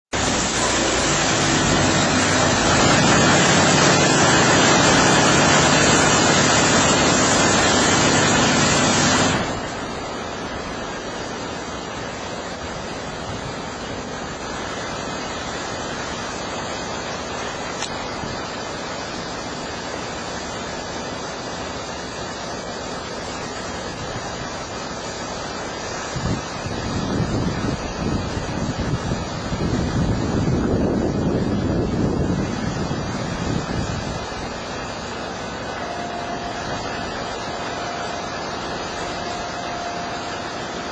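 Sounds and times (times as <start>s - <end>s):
high-pressure water spraying: 0.0s - 40.9s
low hum: 30.3s - 40.9s.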